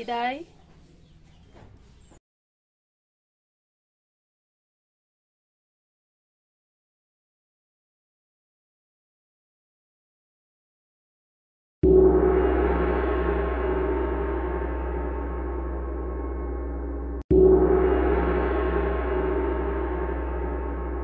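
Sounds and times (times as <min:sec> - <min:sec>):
rich ringing tone: 0:11.8 - 0:21.0.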